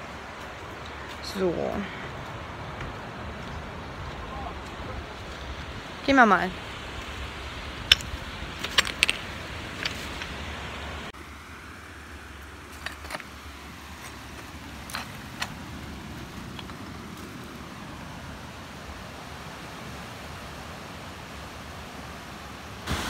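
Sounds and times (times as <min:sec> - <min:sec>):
wind: 0:00.0 - 0:23.0
footsteps on coral rubble: 0:07.9 - 0:10.4, 0:12.7 - 0:17.4.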